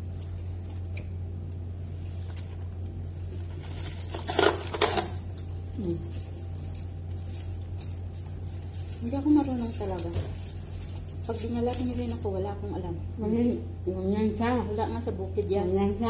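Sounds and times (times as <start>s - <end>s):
steady low hum: 0.0s - 16.0s
plastic wrapping crinkling: 1.9s - 13.2s.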